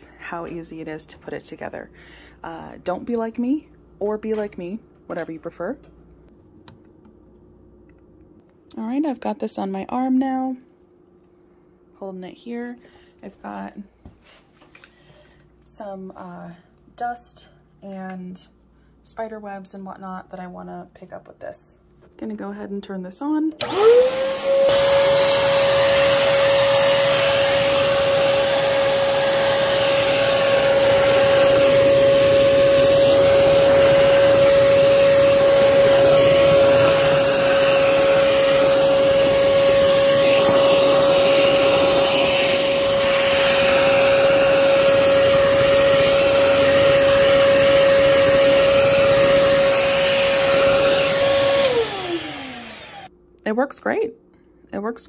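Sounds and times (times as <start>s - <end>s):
vacuum cleaner running: 23.5s - 53.1s
vacuum motor spinning down: 23.6s - 53.1s.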